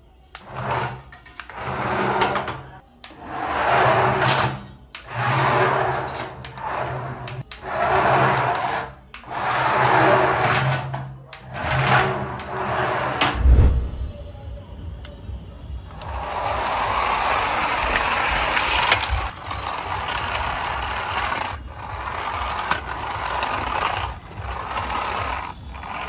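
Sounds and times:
toy car motors whirring: 0:15.9 - 0:26.0.

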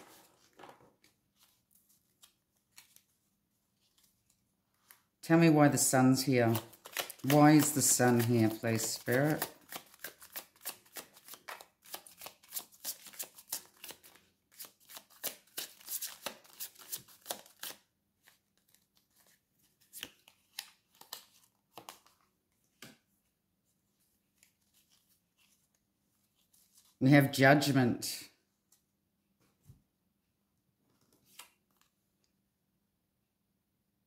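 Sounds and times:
cards shuffling clicks: 0:06.5 - 0:17.8.

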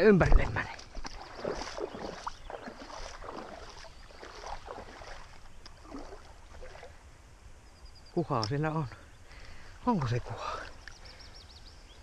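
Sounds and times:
water splashing and sloshing: 0:00.0 - 0:07.2, 0:09.8 - 0:10.9.

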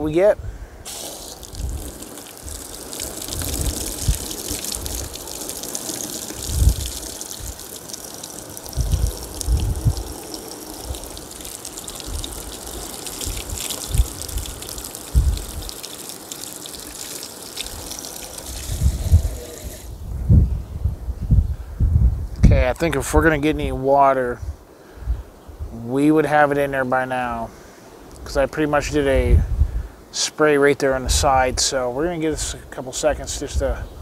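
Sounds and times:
wind rumble on microphone: 0:00.0 - 0:15.8, 0:17.6 - 0:25.8, 0:28.2 - 0:30.0, 0:31.1 - 0:31.6, 0:32.3 - 0:34.0
hose spraying water on a door: 0:00.9 - 0:19.9.

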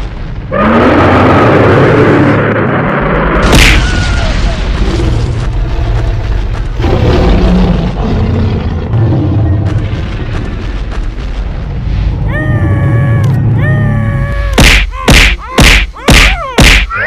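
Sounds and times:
low rumble with booms: 0:00.0 - 0:15.6
high-pitched cries: 0:12.3 - 0:17.0.

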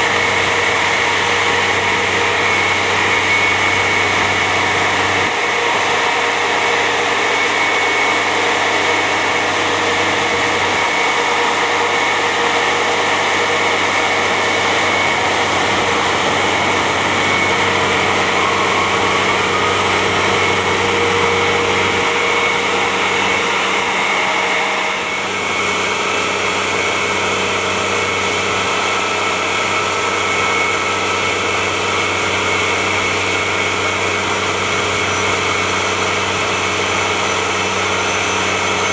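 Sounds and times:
tracked vehicle engine droning: 0:00.0 - 0:30.4
high whine: 0:00.0 - 0:38.9.

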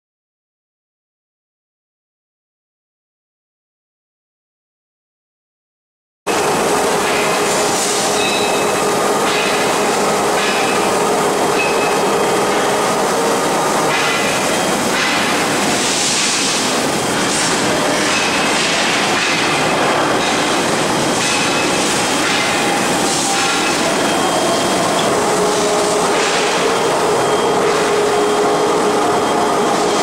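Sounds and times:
rolling mill mechanical din: 0:06.3 - 0:30.0
high metallic squeals: 0:07.8 - 0:13.5, 0:22.4 - 0:30.0.

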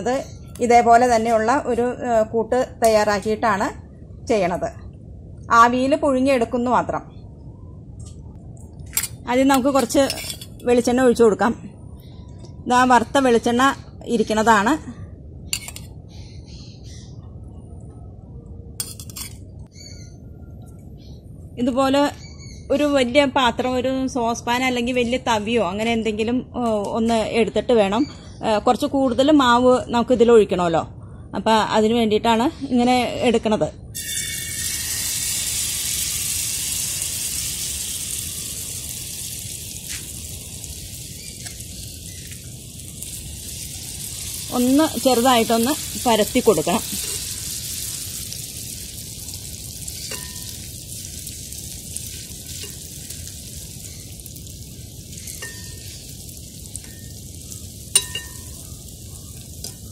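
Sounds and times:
steel utensils clinking: 0:08.9 - 0:10.7, 0:18.8 - 0:19.4, 0:34.0 - 0:35.1, 0:46.5 - 0:47.3, 0:50.0 - 0:50.6, 0:55.3 - 0:55.9, 0:57.9 - 0:58.7
batter sizzling in hot oil: 0:34.0 - 0:59.9
birds chirping: 0:40.4 - 0:47.0, 0:53.4 - 0:59.9.

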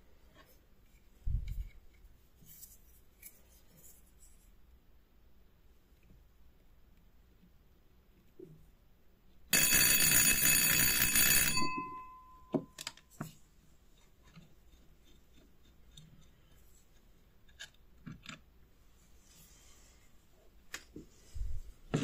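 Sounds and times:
electric doorbell ringing: 0:09.6 - 0:12.9.

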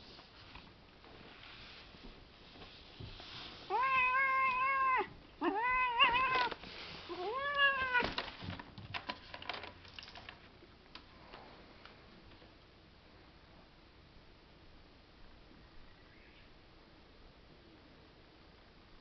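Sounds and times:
kitten meowing: 0:03.7 - 0:06.5.

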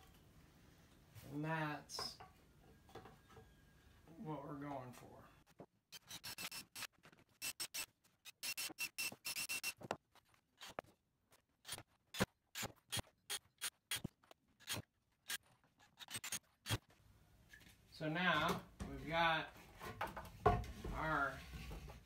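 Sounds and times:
cordless drill bursts: 0:06.0 - 0:09.8.

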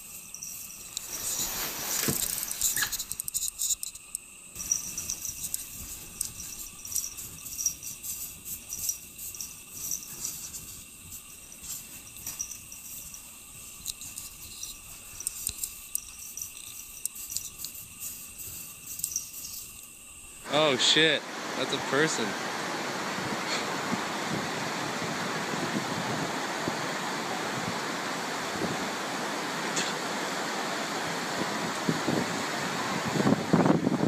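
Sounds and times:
cat scratching packed snow: 0:00.6 - 0:03.1, 0:04.6 - 0:15.4, 0:16.2 - 0:19.8.

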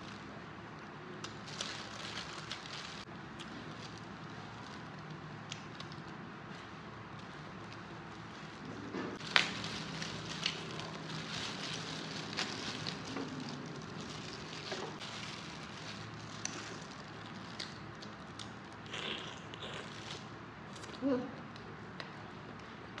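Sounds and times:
small clicks and crackles: 0:00.8 - 0:18.8.

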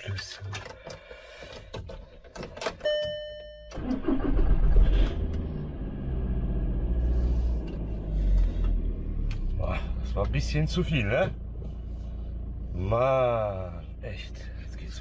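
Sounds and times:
car engine cranking and idling: 0:00.0 - 0:15.0
dashboard beep: 0:02.8 - 0:03.8.

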